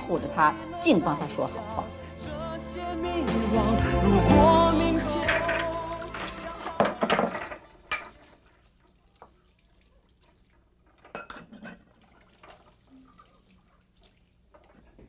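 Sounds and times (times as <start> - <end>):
dishes clinking in sink: 5.2 - 8.5, 10.8 - 13.2.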